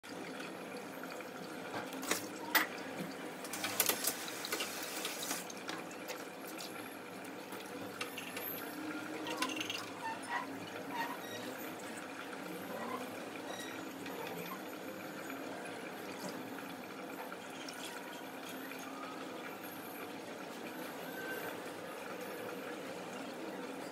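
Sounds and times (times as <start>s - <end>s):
tap running water into sink: 1.7s - 12.3s.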